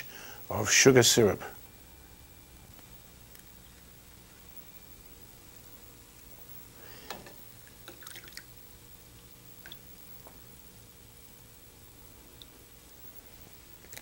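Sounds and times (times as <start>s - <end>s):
liquid dripping and splashing: 7.6s - 8.5s.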